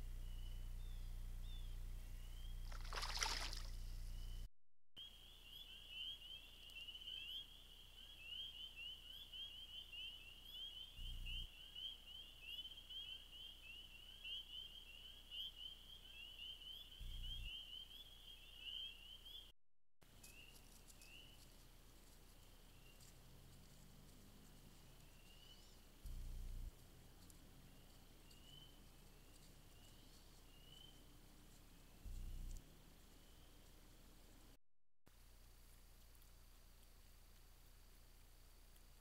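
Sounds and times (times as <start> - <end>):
low hum: 0.0 - 4.5, 23.2 - 34.6
frogs calling: 2.6 - 3.8, 5.0 - 19.5.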